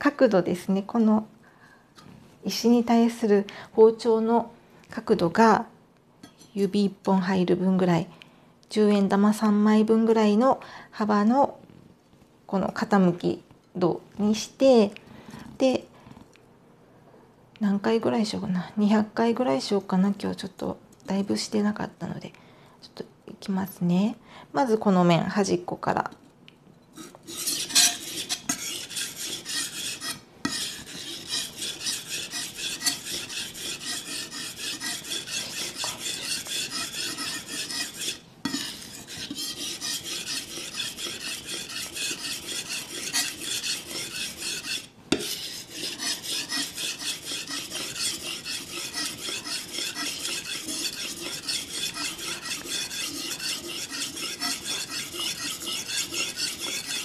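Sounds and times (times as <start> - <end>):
knife scraping on wet whetstone: 26.9 - 57.0.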